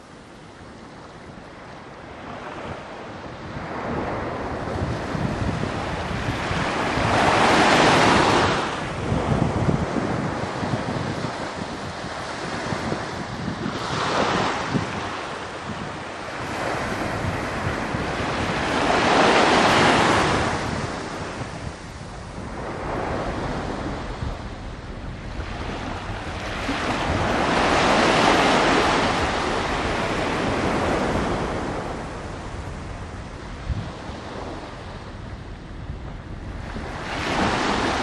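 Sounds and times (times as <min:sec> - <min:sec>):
wind rumble on microphone: 0:00.0 - 0:38.0
waves rushing hiss: 0:13.3 - 0:38.0.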